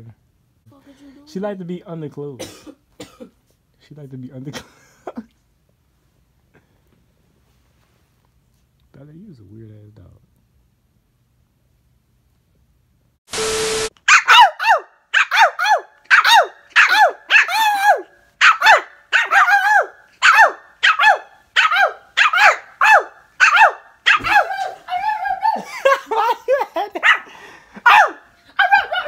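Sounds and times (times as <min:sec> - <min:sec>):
puppy yapping: 0:14.1 - 0:26.0, 0:26.9 - 0:29.0.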